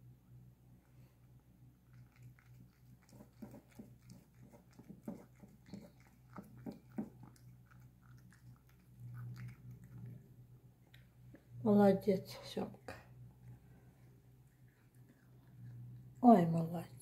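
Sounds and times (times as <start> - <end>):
cat eating wet smacking: 1.6 - 11.3, 13.1 - 16.2.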